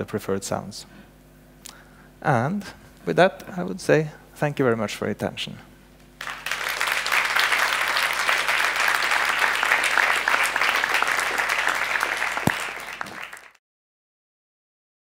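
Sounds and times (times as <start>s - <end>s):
audience applauding: 6.2s - 13.6s.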